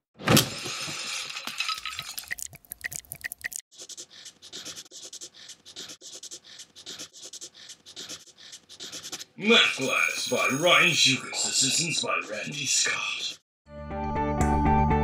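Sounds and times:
small clicks and squeaks: 3.3s - 9.3s
rapid scratchy rubbing: 3.7s - 9.4s.

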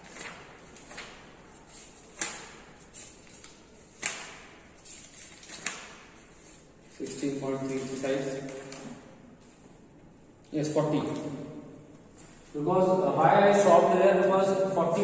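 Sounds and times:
sharp taps with room echo: 2.0s - 4.7s, 5.5s - 6.2s.

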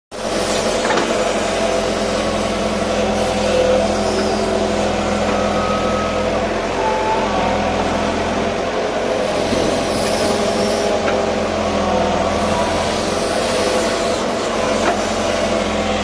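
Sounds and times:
excavator diesel engine running: 0.1s - 16.0s
short high whines: 3.9s - 8.5s.

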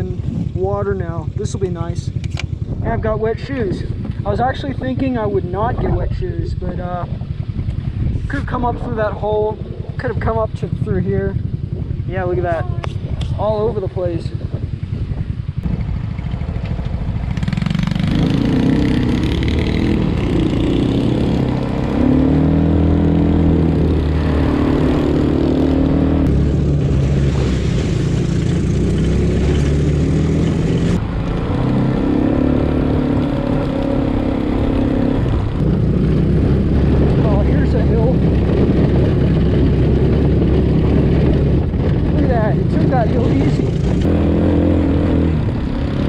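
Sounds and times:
small engines revving: 16.6s - 46.0s.

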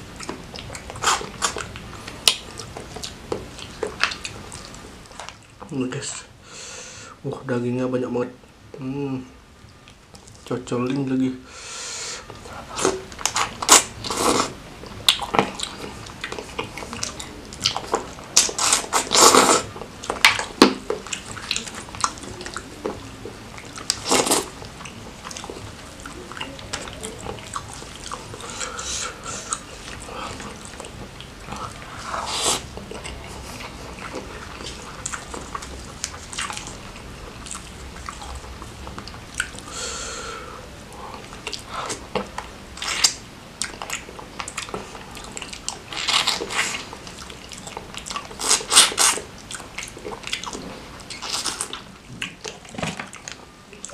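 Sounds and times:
biting and chewing: 0.1s - 5.5s, 12.3s - 39.7s, 41.1s - 53.9s
wet mouth sounds: 0.2s - 5.4s, 12.3s - 39.9s, 40.9s - 53.9s.

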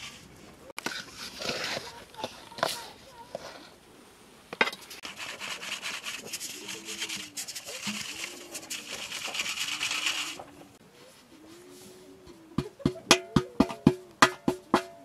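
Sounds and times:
metal sieve rasping: 4.8s - 10.6s.

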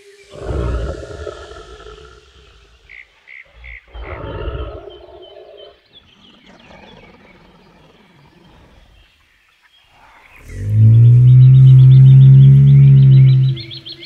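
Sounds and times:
dinosaur growling roar: 0.2s - 2.9s, 3.6s - 5.8s, 10.4s - 14.0s.

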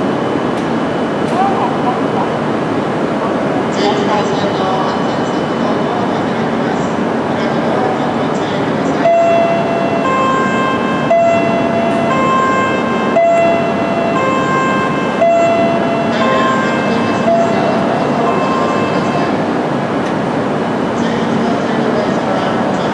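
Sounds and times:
station and train hum: 0.0s - 22.9s
two-tone warning chime: 9.0s - 19.4s.

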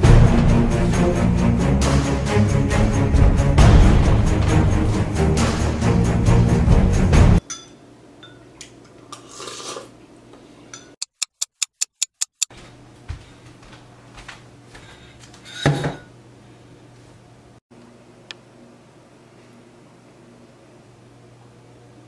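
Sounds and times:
sharp ticks: 11.0s - 12.5s.

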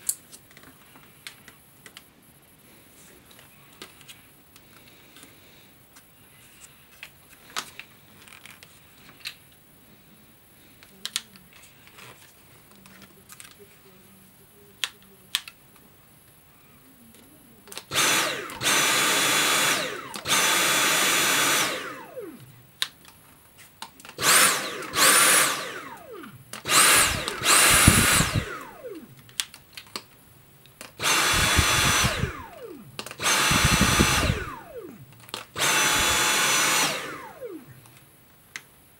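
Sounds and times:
plastic clicks from handling: 10.8s - 12.1s, 12.7s - 13.6s, 14.8s - 15.9s, 17.1s - 17.9s, 28.8s - 31.0s, 34.7s - 35.5s
cordless vacuum motor whining: 17.7s - 22.5s, 24.0s - 29.2s, 30.9s - 38.0s.

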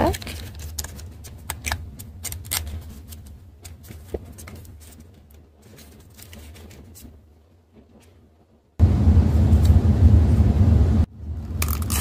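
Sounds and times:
paper packaging rustling: 0.0s - 8.3s
steady low hum: 8.0s - 12.0s.

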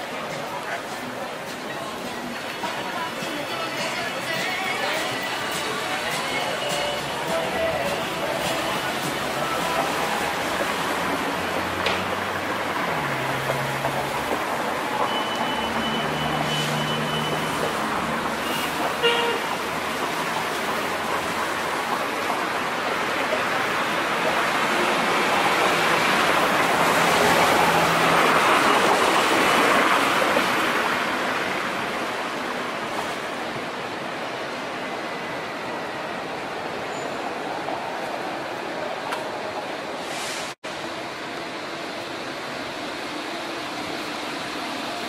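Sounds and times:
cars and bus passing: 0.0s - 45.0s
short high beep: 15.0s - 17.6s.

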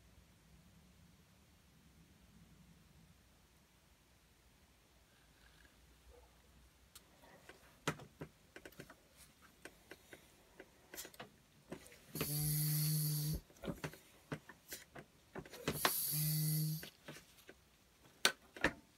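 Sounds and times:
foot pump air hiss: 12.1s - 13.5s, 15.7s - 16.9s.

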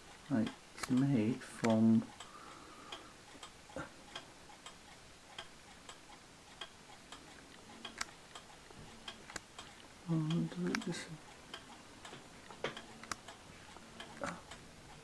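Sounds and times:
wall clock ticking: 0.0s - 15.0s.

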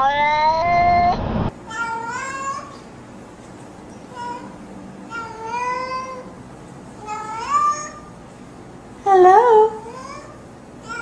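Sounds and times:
cat meowing: 0.0s - 1.2s.

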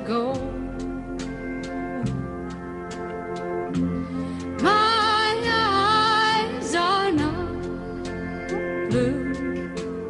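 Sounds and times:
woman singing: 0.0s - 1.0s, 4.5s - 10.0s
country instrumental accompaniment: 0.0s - 10.0s.

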